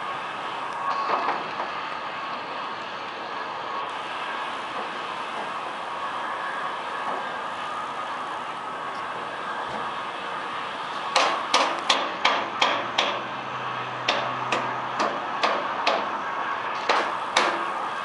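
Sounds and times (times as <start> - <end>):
hammer striking wooden planks: 11.1 - 13.2, 14.1 - 16.1, 16.9 - 17.7.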